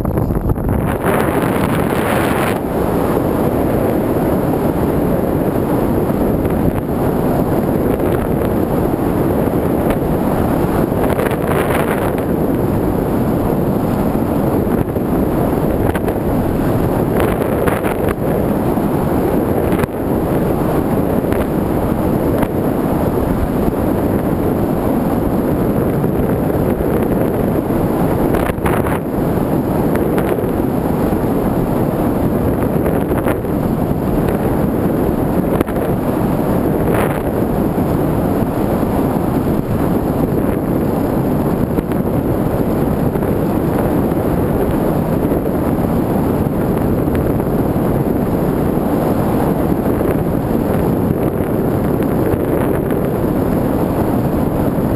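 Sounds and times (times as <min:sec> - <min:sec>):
wind rushing over microphone: 0:00.0 - 0:54.9.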